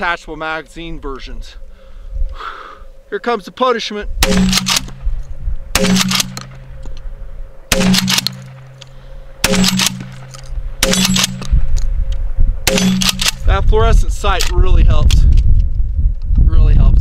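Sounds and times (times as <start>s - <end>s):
shotgun blasts: 4.2s - 5.0s, 5.7s - 6.7s, 7.7s - 8.8s, 9.4s - 11.5s, 12.6s - 13.6s
shotgun pump action: 4.2s - 5.0s, 5.8s - 6.6s, 7.7s - 11.5s, 12.7s - 13.4s.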